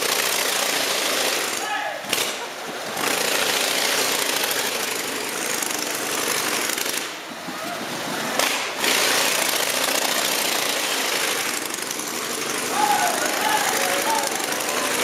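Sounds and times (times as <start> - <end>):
motorcycle engine running loudly: 0.0 - 15.0.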